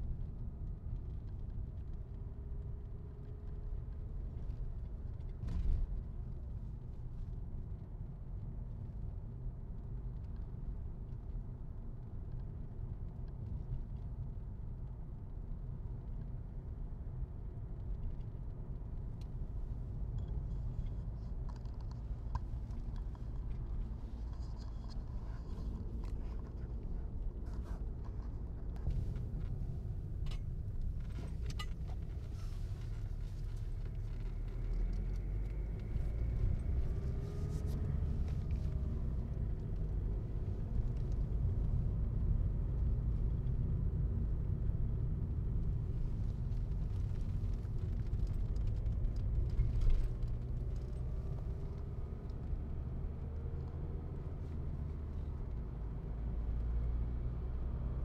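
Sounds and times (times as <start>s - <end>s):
car interior road rumble: 0.2s - 58.0s.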